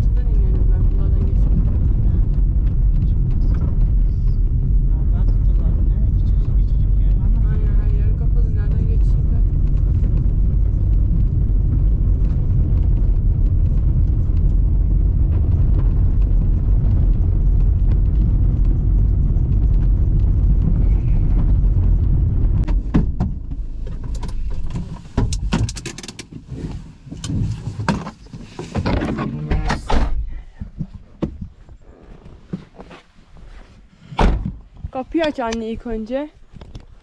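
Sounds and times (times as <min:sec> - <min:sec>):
vehicle rumble: 0:00.0 - 0:37.0
sharp clicks and knocks: 0:09.5 - 0:26.4.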